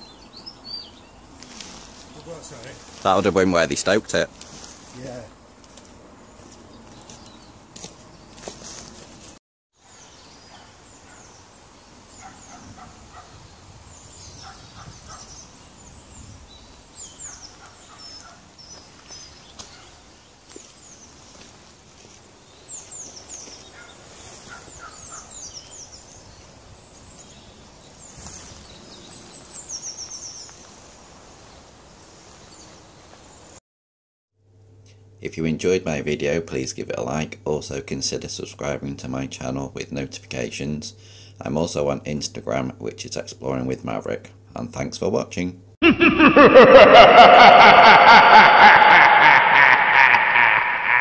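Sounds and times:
small songbirds singing: 0.0 - 2.8, 6.2 - 8.4, 9.8 - 30.7
low steady background noise: 0.0 - 33.6, 34.4 - 50.8.

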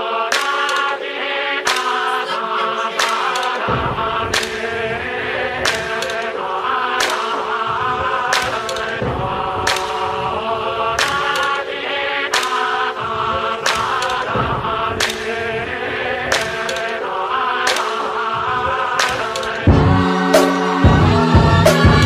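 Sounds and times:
chant-like choral vocals: 0.0 - 22.0
sharp percussive hits: 3.0 - 22.0
deep bass layer: 19.7 - 22.0.

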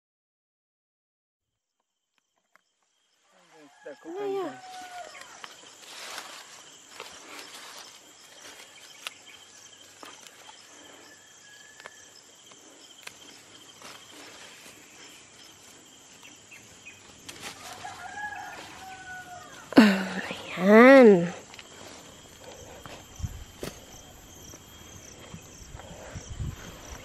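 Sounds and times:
rooster crowing: 3.4 - 5.5, 11.0 - 12.1, 17.5 - 19.8
rustling of vines and dry soil: 3.7 - 27.0.

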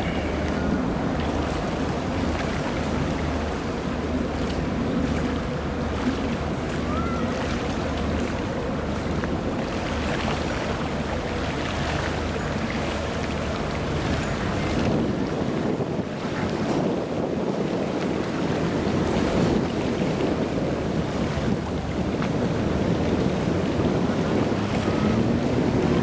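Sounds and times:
boat engines rumbling: 0.0 - 26.0
water wash: 0.0 - 26.0
wind noise: 13.8 - 26.0.

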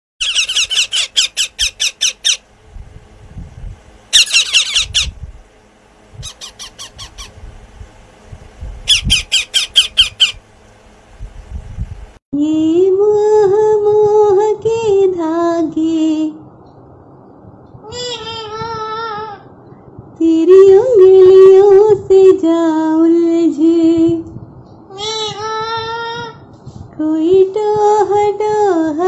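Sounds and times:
parakeet chicks squawking: 0.2 - 2.5, 4.1 - 5.2, 6.2 - 7.4, 8.9 - 10.4.

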